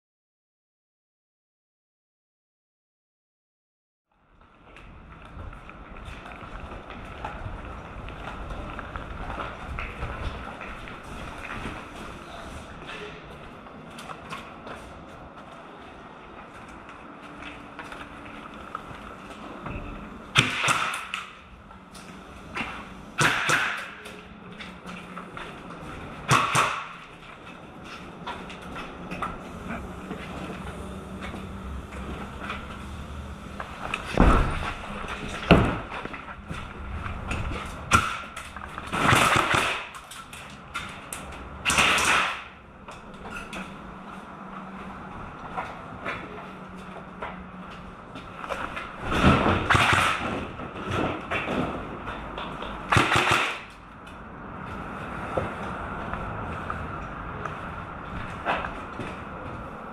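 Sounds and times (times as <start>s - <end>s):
airsoft rifle shots: 20.4s - 21.3s, 23.2s - 24.0s, 26.3s - 27.0s, 37.9s - 40.0s, 41.6s - 42.5s, 49.5s - 50.4s, 52.9s - 53.7s
footsteps: 26.9s - 38.9s, 54.4s - 59.9s.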